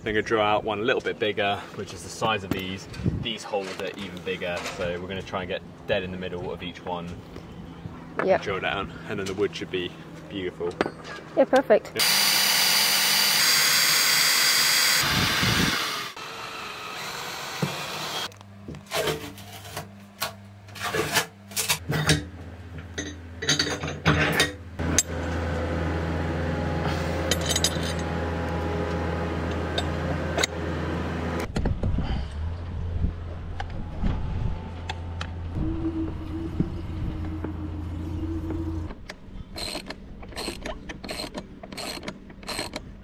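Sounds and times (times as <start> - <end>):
steady low hum: 0.0 - 13.4, 18.2 - 43.0
electric drill whirring: 12.0 - 18.3, 39.6 - 42.8.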